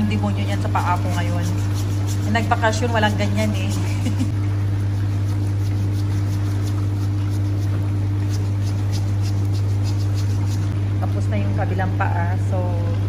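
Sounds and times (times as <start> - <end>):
massager humming: 0.0 - 13.0
foot file rasping: 0.7 - 4.3.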